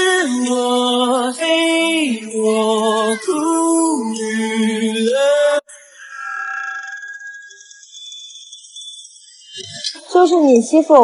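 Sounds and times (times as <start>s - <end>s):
person singing with vibrato: 0.0s - 6.2s.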